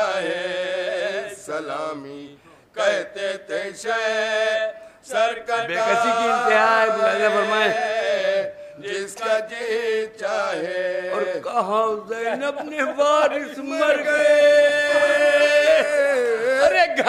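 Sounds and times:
men chanting together: 0.0s - 17.0s.

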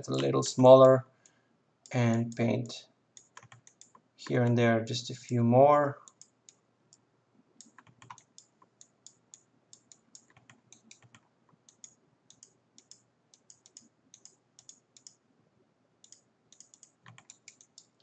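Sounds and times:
computer mouse clicks: 3.2s - 4.4s, 6.0s - 7.0s, 7.6s - 15.2s, 16.0s - 18.0s.

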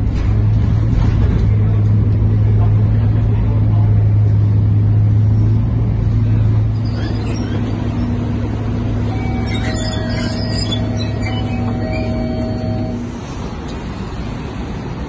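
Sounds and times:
bus engine droning: 0.0s - 15.0s.

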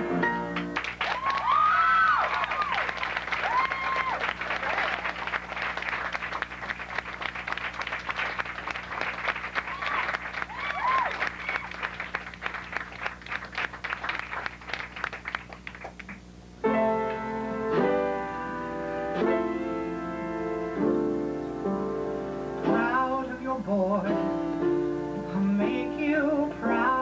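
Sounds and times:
piano playing chords: 0.0s - 1.0s, 16.5s - 27.0s
audience applause: 0.5s - 16.2s
crowd calls: 1.0s - 15.6s.

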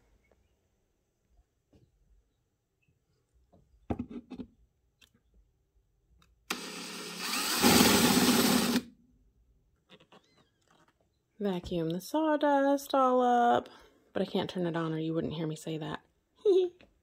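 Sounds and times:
cordless drill boring wood: 6.5s - 8.9s.

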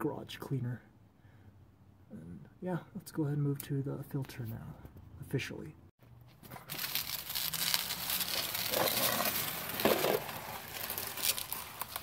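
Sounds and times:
drain pan dragged across concrete: 7.2s - 12.0s.

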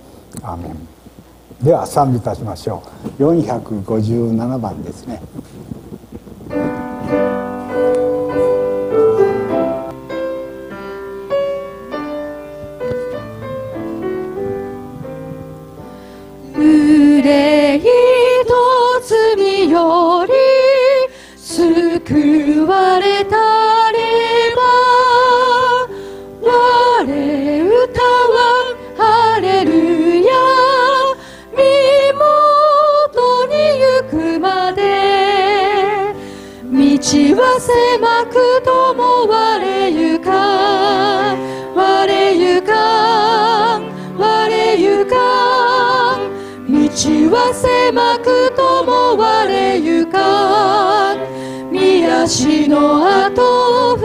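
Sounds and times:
grand piano playing: 6.5s - 54.0s
voices singing a hymn: 16.4s - 54.0s.

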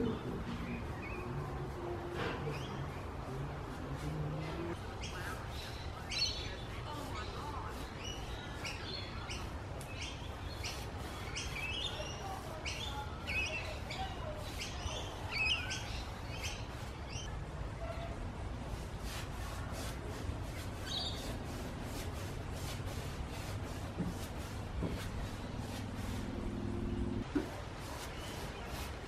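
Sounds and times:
birds chirping: 0.0s - 18.2s, 20.5s - 21.4s, 23.9s - 27.3s
low background rumble: 23.8s - 27.3s.

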